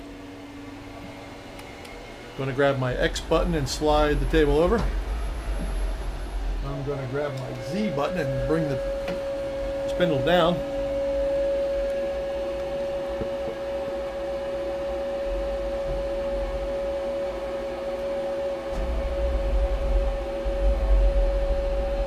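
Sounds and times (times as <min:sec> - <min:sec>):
machining center humming whine: 0:00.0 - 0:22.0
low rumble: 0:02.3 - 0:11.3, 0:18.8 - 0:22.0.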